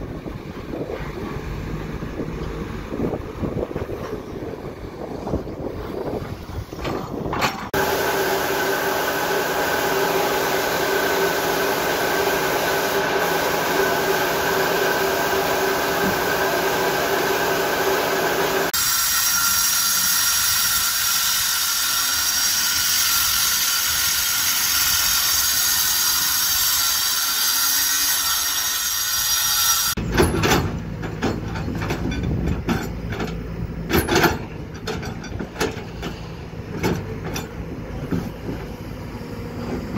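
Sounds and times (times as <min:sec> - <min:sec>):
excavator engine rumbling: 0:00.0 - 0:18.8, 0:30.0 - 0:39.9
angle grinder cutting concrete: 0:07.8 - 0:30.0
paint-spraying rig humming and whining: 0:07.8 - 0:30.0.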